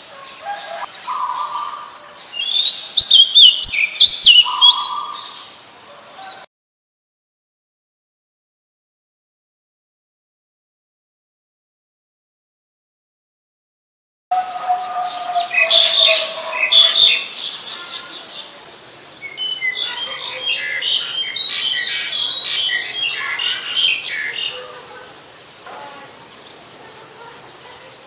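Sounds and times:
starlings squawking: 0.6 - 5.4, 14.3 - 18.4, 19.2 - 26.8
chattering whistled bird notes: 14.3 - 17.3.

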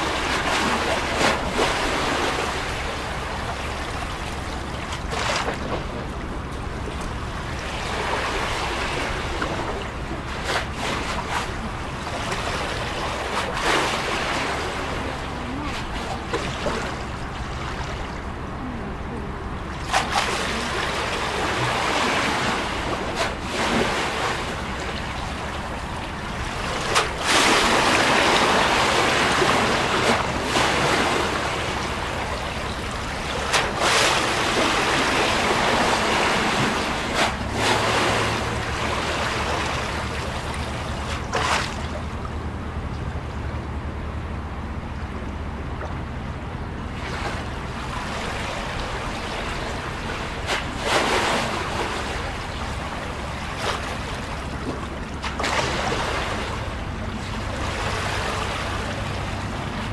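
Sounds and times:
sharp water splash: 0.0 - 6.0, 19.8 - 42.1, 47.0 - 56.8
waves slapping against quay wall: 0.0 - 43.5, 45.1 - 59.9
low steady hum: 0.0 - 59.9.

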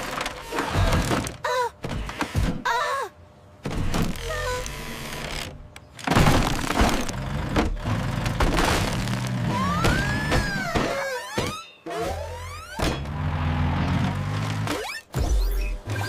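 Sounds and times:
cartoon brick wall crashing: 6.1 - 7.1, 8.3 - 11.6.

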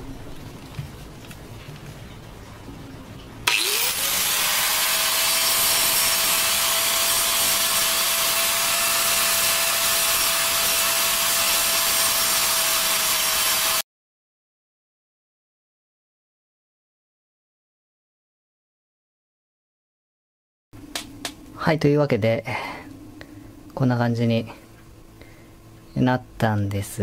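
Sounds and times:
angle grinder whining: 3.4 - 13.8.

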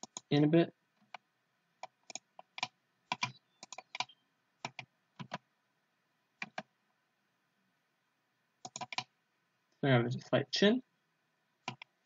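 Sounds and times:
keyboard and mouse clicks: 0.0 - 0.3, 1.0 - 1.2, 1.8 - 5.4, 6.4 - 6.7, 8.6 - 9.1, 11.6 - 12.0.

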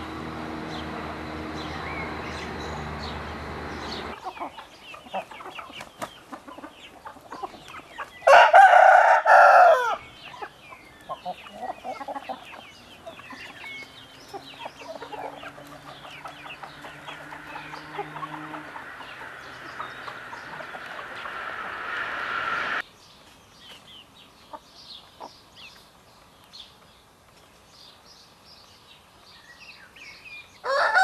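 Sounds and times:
young fowl clucking and chirping: 0.8 - 22.8, 23.7 - 25.8
cockerel crowing: 8.2 - 10.0, 30.6 - 31.0
faint low drone: 16.0 - 22.8.

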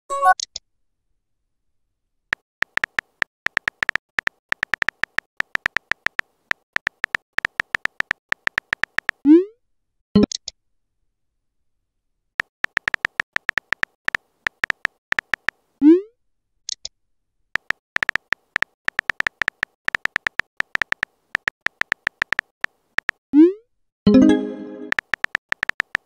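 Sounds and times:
phone keyboard taps: 2.6 - 9.2, 12.4 - 15.6, 17.6 - 23.2, 24.9 - 26.0.

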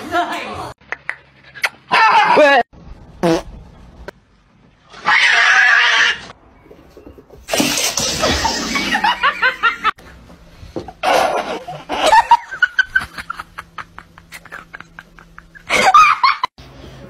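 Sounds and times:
person laughing: 11.0 - 16.5.

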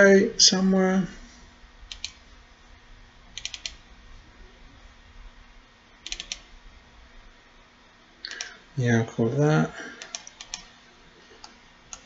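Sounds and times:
faint steady hum: 0.0 - 12.0
keyboard clicks: 1.9 - 2.2, 3.4 - 3.8, 6.0 - 6.5, 8.3 - 8.6, 10.0 - 10.7.

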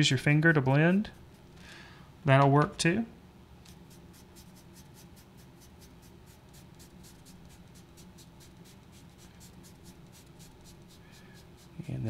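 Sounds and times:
sponge scrubbing on paper: 3.7 - 12.0.

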